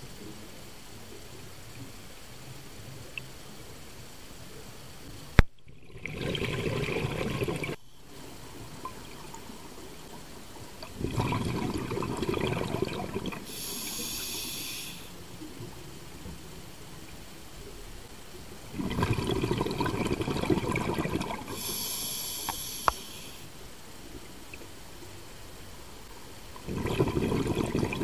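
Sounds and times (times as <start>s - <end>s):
exhaled bubbles underwater: 5.7s - 13.9s, 18.7s - 22.7s, 26.6s - 28.0s
regulator hissing inhale: 13.4s - 15.2s, 21.5s - 23.6s.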